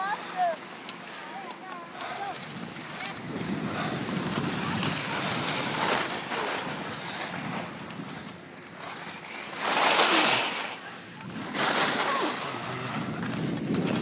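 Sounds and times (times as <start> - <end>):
skis hissing on snow: 0.0 - 12.8
wind rushing over microphone: 2.3 - 8.4, 11.0 - 14.0.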